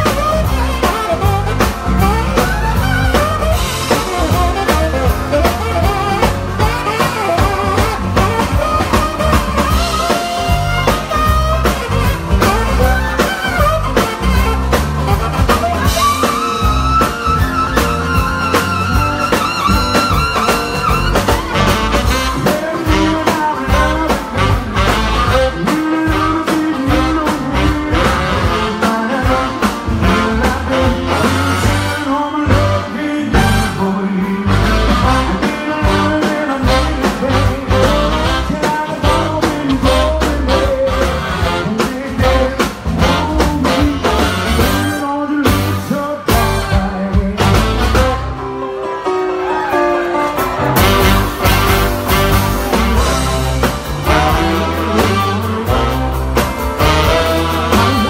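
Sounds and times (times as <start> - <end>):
person singing: 0.0 - 11.4, 21.5 - 48.7, 52.3 - 58.0
live band playing rhythm and blues: 0.0 - 58.0.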